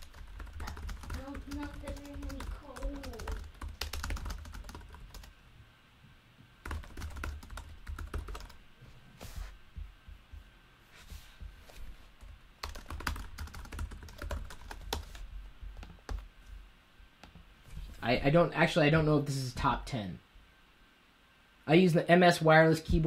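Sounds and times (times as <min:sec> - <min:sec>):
typing on computer keyboard: 0:00.0 - 0:05.3, 0:06.6 - 0:08.6, 0:12.6 - 0:15.2.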